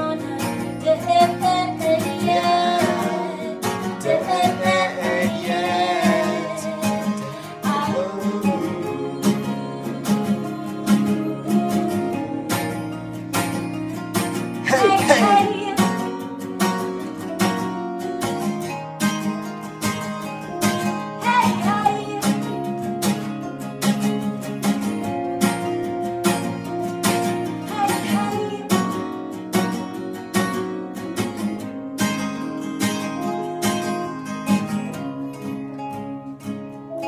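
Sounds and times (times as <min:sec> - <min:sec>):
person singing: 0:00.0 - 0:13.2, 0:14.6 - 0:16.2, 0:21.2 - 0:22.6, 0:27.7 - 0:28.9
acoustic guitars strumming: 0:00.0 - 0:37.0.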